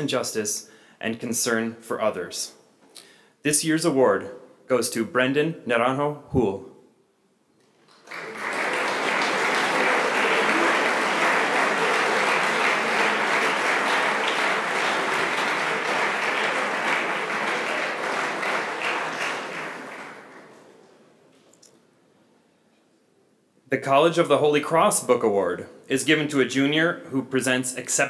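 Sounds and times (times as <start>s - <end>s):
audience applauding: 7.8s - 20.9s.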